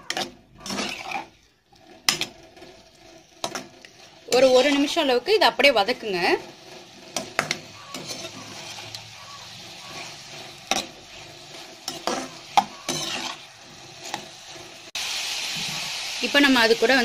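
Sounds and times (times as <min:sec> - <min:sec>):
spatula scraping metal pan: 0:00.0 - 0:14.9
vegetables sizzling in oil: 0:00.0 - 0:17.0.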